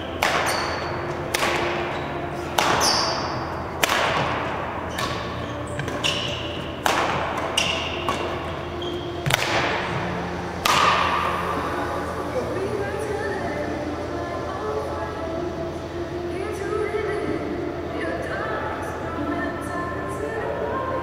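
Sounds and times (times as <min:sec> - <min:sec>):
rackets hitting shuttlecock: 0:00.1 - 0:11.5.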